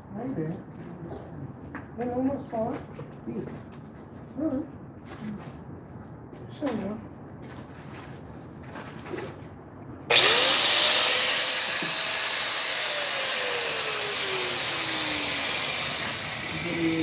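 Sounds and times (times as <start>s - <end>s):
small electric motor whine: 10.1s - 17.0s.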